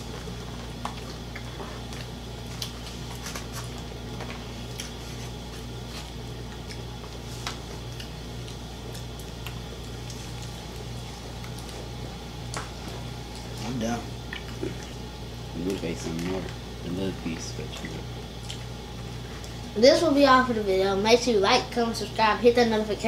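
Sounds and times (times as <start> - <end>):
fingers picking at food on plates: 0.6 - 15.0
chewing smacks: 0.8 - 3.8, 4.7 - 13.6, 14.2 - 15.0, 17.8 - 18.7.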